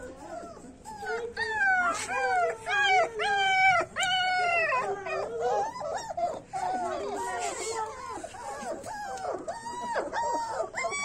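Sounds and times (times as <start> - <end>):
puppy howling: 0.0 - 7.4.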